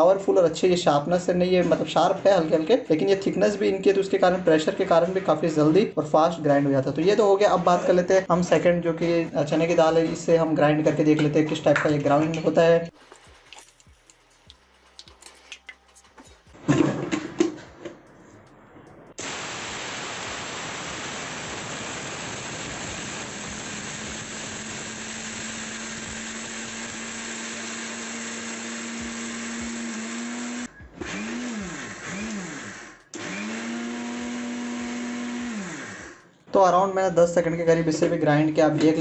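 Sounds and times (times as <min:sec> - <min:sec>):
mixer grinder whirring: 0:19.2 - 0:36.4.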